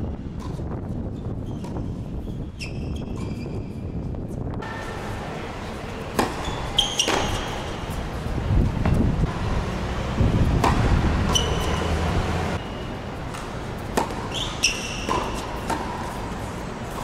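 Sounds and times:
court shoes squeaking: 0:00.4 - 0:17.0
tennis racket hitting ball: 0:05.7 - 0:08.0, 0:08.8 - 0:12.6, 0:13.2 - 0:17.0.

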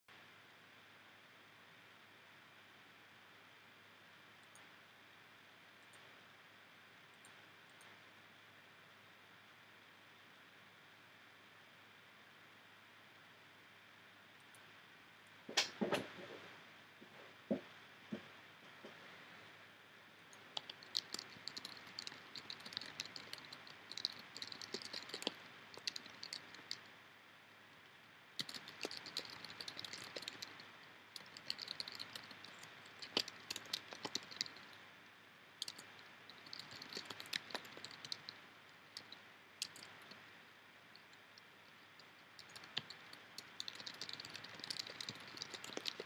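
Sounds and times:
computer keyboard typing: 0:20.3 - 0:26.9, 0:28.4 - 0:34.8, 0:35.6 - 0:40.2, 0:41.0 - 0:46.0.

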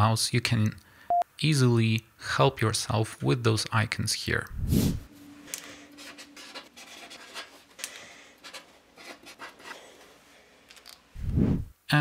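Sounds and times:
marker pen scratching on paper: 0:06.0 - 0:10.2.

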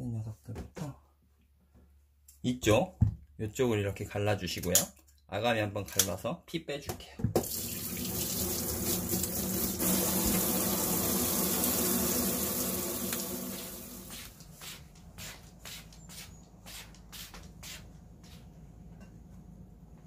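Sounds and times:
tap water running into sink: 0:07.4 - 0:14.2.

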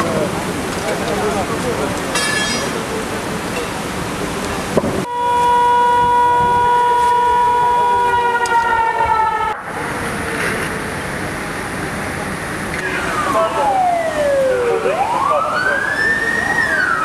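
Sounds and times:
steady background noise: 0:00.0 - 0:17.0
emergency siren: 0:05.1 - 0:09.8, 0:12.8 - 0:17.0.

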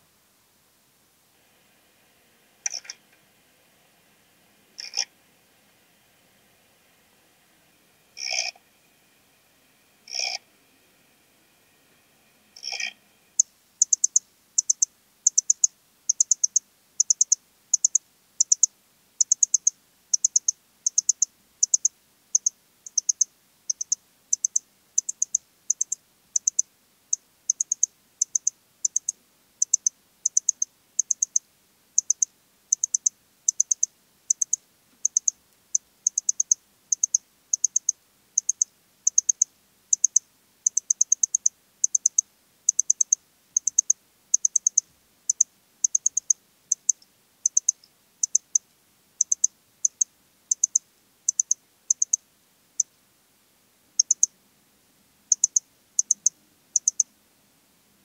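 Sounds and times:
cricket chirping: 0:02.6 - 0:03.0, 0:08.0 - 0:31.4, 0:32.0 - 0:48.6, 0:49.2 - 0:52.2, 0:54.0 - 0:54.3, 0:55.3 - 0:57.1.

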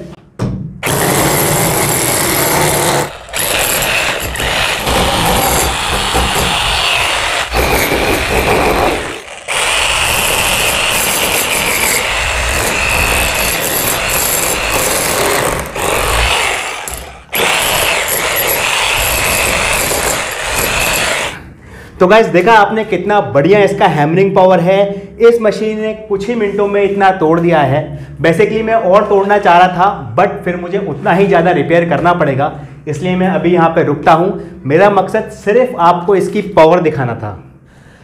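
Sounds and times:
demolition hammer chipping brick wall: 0:00.8 - 0:21.4.

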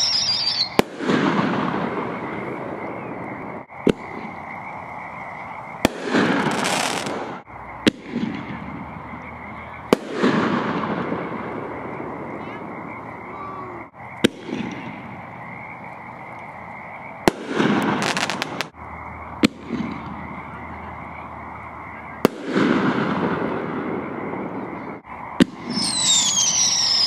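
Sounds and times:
high falling whistles: 0:00.0 - 0:00.9, 0:25.6 - 0:27.0
fireworks crackling: 0:00.0 - 0:16.3, 0:17.2 - 0:21.3, 0:22.2 - 0:24.7, 0:25.4 - 0:27.0
fireworks shells bursting: 0:17.3 - 0:18.8.

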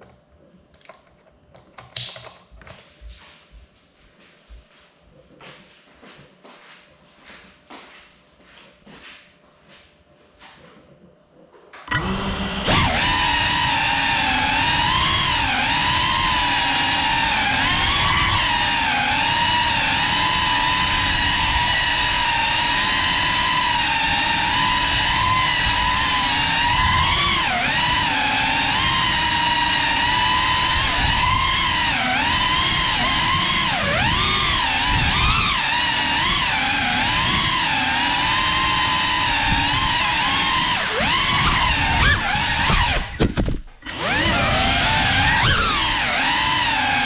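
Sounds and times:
drone motors whining: 0:11.8 - 0:47.0.

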